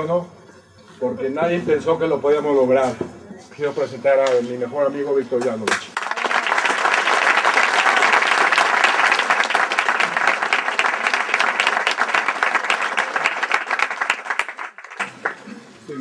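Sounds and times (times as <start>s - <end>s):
audience applauding: 6.0s - 15.6s.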